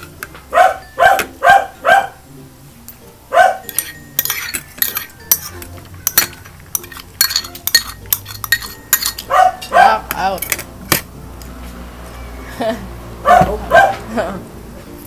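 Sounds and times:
dog barking: 0.5 - 2.2, 3.3 - 3.7, 9.3 - 10.0, 13.2 - 14.1
cutlery clinking: 3.6 - 11.1.

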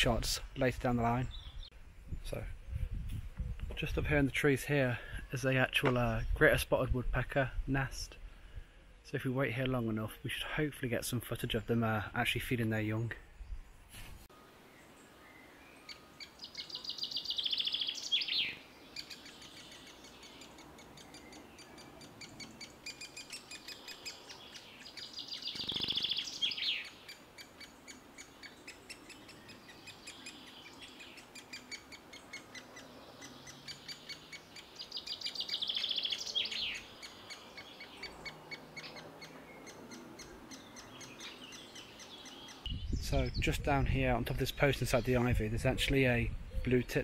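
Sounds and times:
woodpecker nestlings begging chatter: 15.9 - 44.0.

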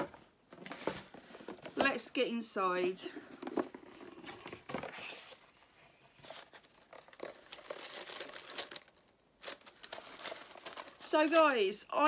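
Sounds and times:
paper packaging rustling: 3.3 - 11.9.

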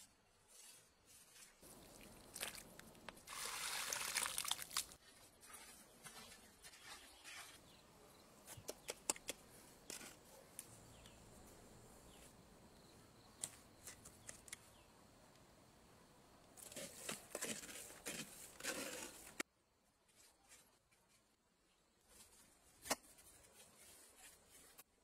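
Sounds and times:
dry cement pouring onto sand: 1.6 - 5.0
trowel scraping mortar: 16.6 - 19.4.

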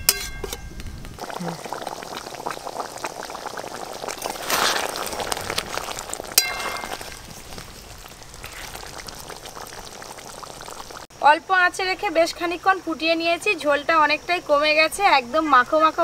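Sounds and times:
metal spatula stirring: 0.0 - 0.6, 5.6 - 7.4
spatula clinking on pan: 0.0 - 0.6, 6.4 - 7.0
curry bubbling and popping: 0.0 - 11.1.

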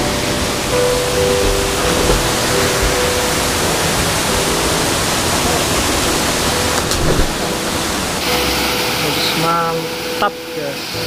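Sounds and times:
waterfall rushing: 0.0 - 11.0
brief thump: 1.4 - 3.3.

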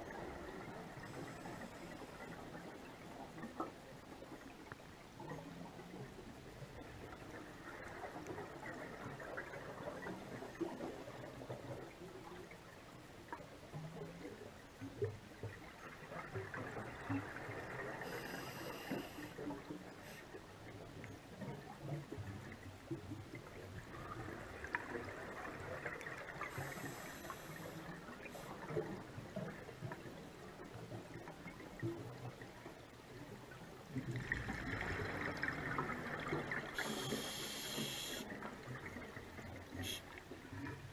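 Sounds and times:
muffled underwater noise: 0.1 - 4.4, 16.0 - 22.6, 23.5 - 31.2, 33.2 - 40.9.

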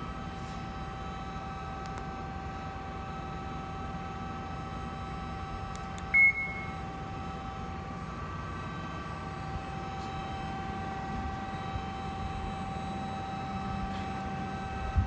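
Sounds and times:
short high beep: 6.1 - 6.8.

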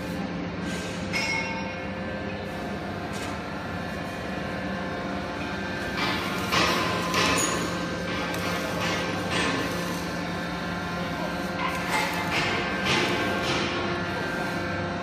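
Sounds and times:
hydraulic power unit humming: 0.0 - 15.0
metallic ringing tones: 1.1 - 1.9.

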